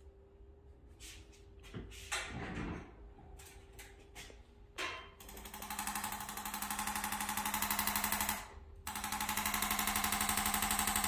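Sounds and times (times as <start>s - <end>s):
rapid mechanical tapping: 5.2s - 11.0s.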